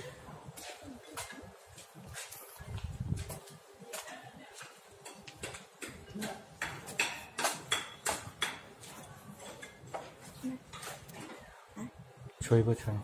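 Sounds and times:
footsteps on concrete: 0:00.5 - 0:05.7.

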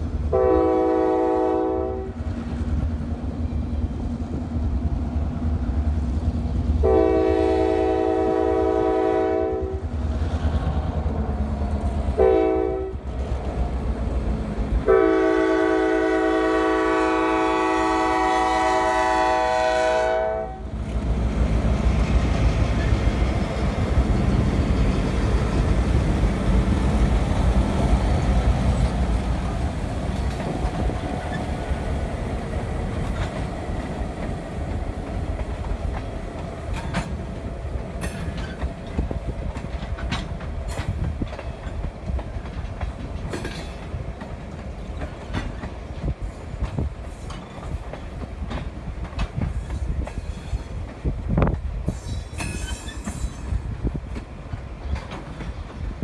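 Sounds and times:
locomotive engine rumble: 0:00.0 - 0:56.0
train wheels clicking over rail joints: 0:20.7 - 0:56.0.

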